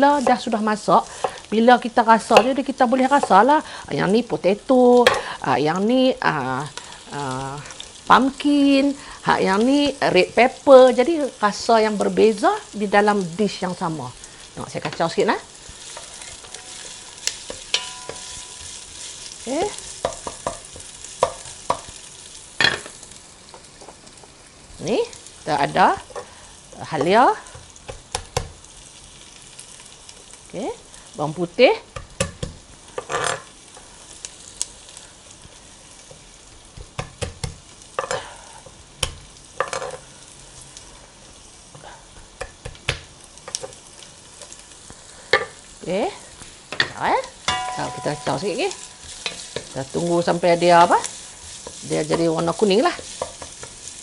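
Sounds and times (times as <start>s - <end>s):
onions sizzling in oil: 0.0s - 54.0s.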